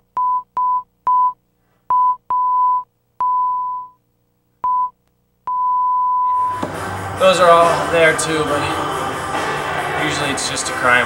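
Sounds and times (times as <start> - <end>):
censor bleeps: 0.2 - 4.0, 4.6 - 6.6.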